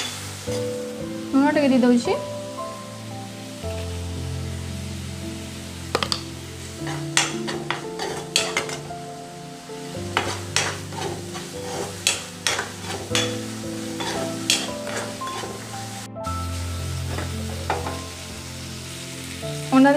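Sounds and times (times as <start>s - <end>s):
sizzling in oil: 0.0s - 19.9s
soft background music: 0.0s - 19.9s
spoon scraping wok: 6.8s - 9.0s, 10.1s - 16.0s, 17.0s - 18.1s.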